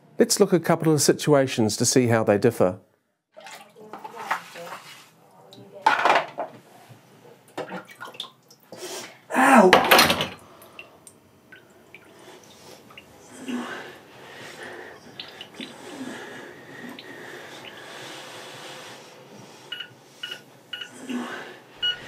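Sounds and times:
water splashing and dripping: 0:03.4 - 0:04.4, 0:07.6 - 0:08.7, 0:10.6 - 0:13.1, 0:15.0 - 0:15.8
items knocking in sink: 0:09.7 - 0:10.4.

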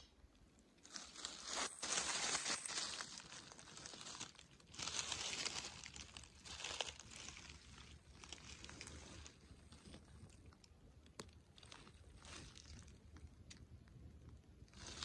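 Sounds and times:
footsteps crunching dry leaves: 0:00.8 - 0:09.4.

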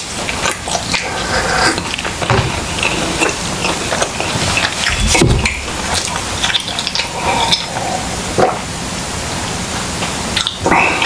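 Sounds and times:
chewing with wet mouth clicks: 0:02.8 - 0:07.8, 0:10.4 - 0:10.6.

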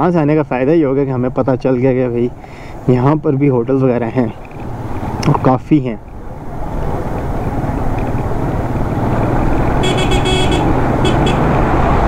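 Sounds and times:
motorcycle engine running: 0:07.3 - 0:11.5
vehicle horn short toots: 0:09.8 - 0:11.5.

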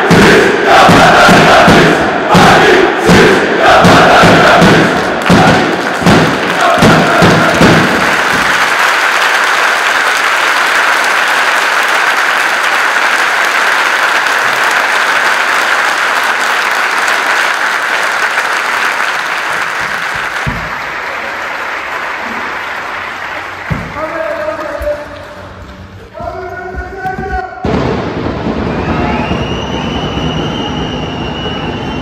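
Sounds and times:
crowd applauding: 0:04.2 - 0:27.0.

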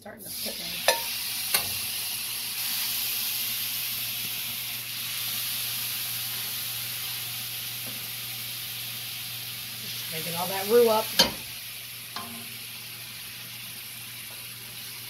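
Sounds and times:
sizzling in skillet: 0:00.0 - 0:15.0
utensil tapping pan: 0:00.8 - 0:01.8, 0:11.1 - 0:11.5, 0:12.1 - 0:12.5.

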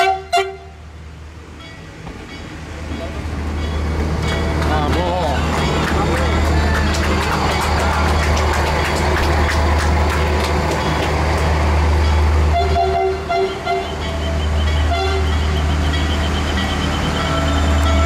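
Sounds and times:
train horn toots: 0:00.0 - 0:00.8, 0:12.4 - 0:18.0.

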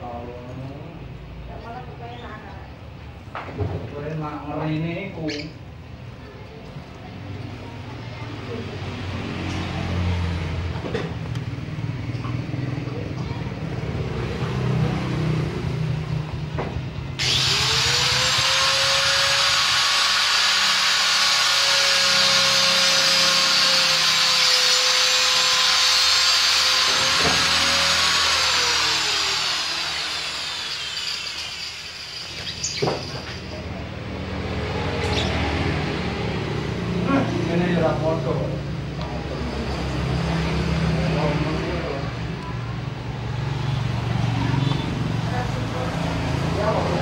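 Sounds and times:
power tool whining: 0:17.2 - 0:33.6.

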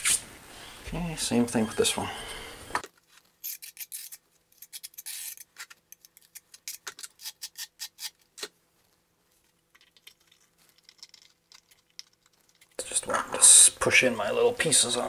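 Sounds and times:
short scrape: 0:00.0 - 0:00.3.

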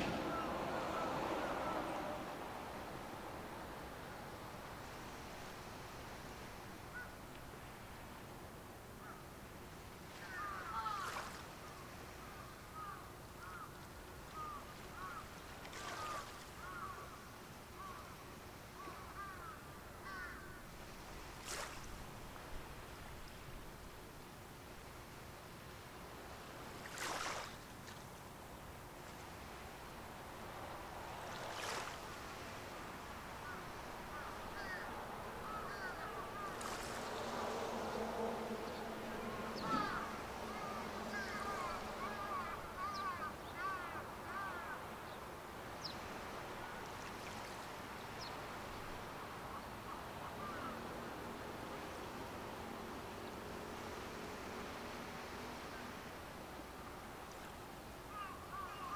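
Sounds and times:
steady background hiss: 0:00.0 - 0:58.9
birds chirping: 0:33.4 - 0:45.2.

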